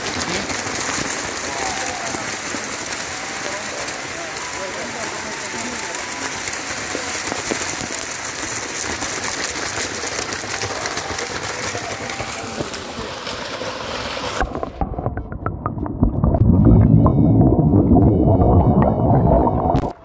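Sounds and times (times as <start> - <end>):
waterfall splashing: 0.0 - 14.8
muffled underwater sound: 14.3 - 20.0.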